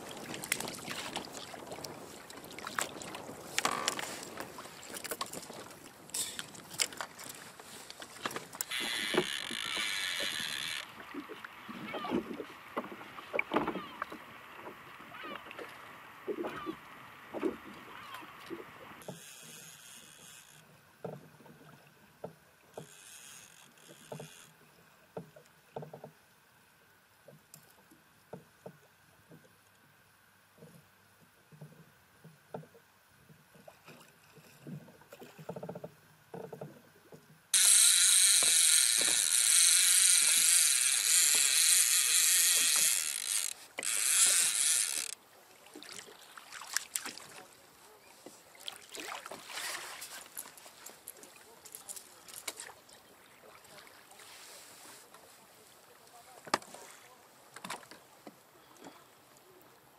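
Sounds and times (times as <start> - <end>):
water slapping kayak hull: 0.0 - 19.3, 33.6 - 59.2.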